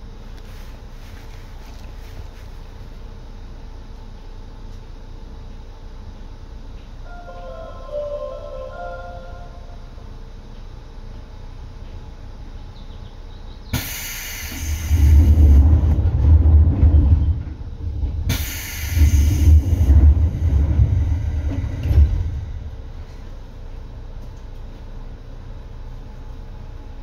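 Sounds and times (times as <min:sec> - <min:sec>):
train low rumble: 0:00.0 - 0:27.0
bursts of hiss: 0:13.7 - 0:15.4.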